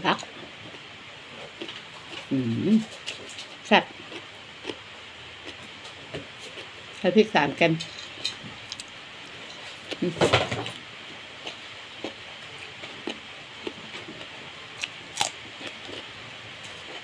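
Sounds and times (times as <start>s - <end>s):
voice: 0.0s - 0.3s, 2.3s - 2.9s, 3.7s - 3.9s, 7.0s - 7.9s, 10.0s - 10.4s
person chewing food: 0.6s - 7.0s, 8.2s - 10.1s, 10.7s - 17.0s.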